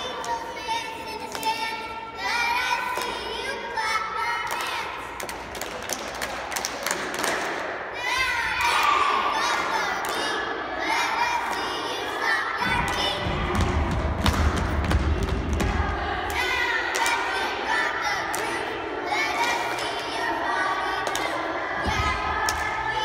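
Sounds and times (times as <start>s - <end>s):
girls chanting a cheer: 0.0s - 23.0s
clapping and stomping: 4.5s - 7.7s, 12.6s - 17.3s, 21.0s - 22.8s.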